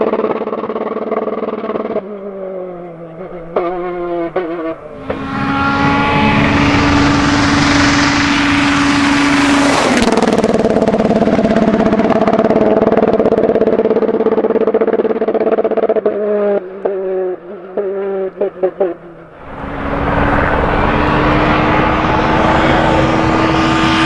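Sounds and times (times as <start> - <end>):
rally car engine at high revs: 0.0 - 24.0
rushing noise: 4.9 - 14.5, 19.2 - 24.0.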